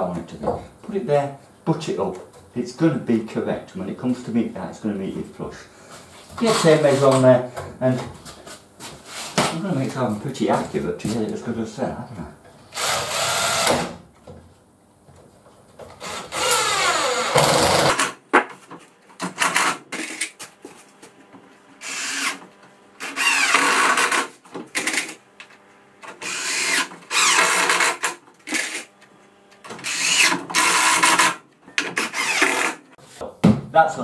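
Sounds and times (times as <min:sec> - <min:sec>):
drill driving screws into wood: 0:12.7 - 0:14.0, 0:15.9 - 0:18.2, 0:19.2 - 0:20.4, 0:21.8 - 0:22.4, 0:23.0 - 0:25.2, 0:26.1 - 0:28.9, 0:29.7 - 0:32.9.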